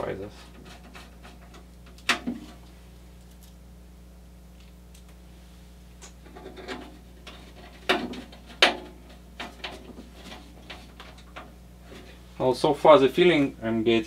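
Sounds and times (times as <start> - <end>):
clicks and knocks on metal frame: 6.2 - 11.5.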